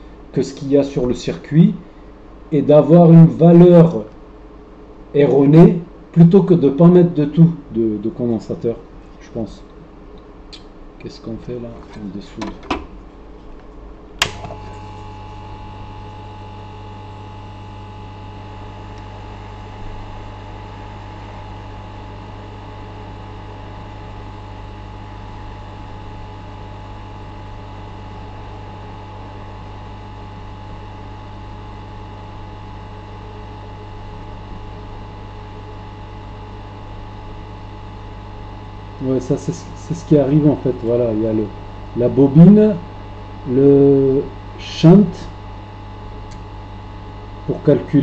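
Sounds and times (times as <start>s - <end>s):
hot air blower hum with whine: 0.0s - 48.0s
switch click: 14.2s - 14.6s.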